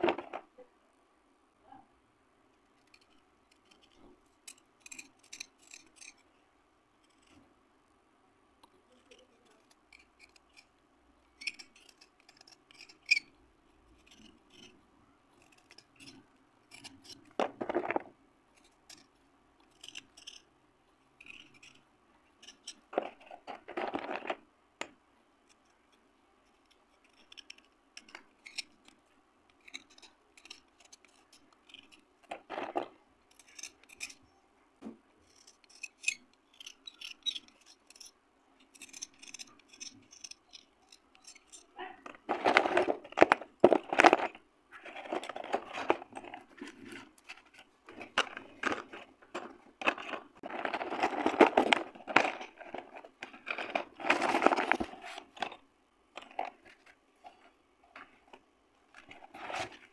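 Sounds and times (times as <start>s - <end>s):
slate pencils clicking and tapping: 35.4s - 55.6s.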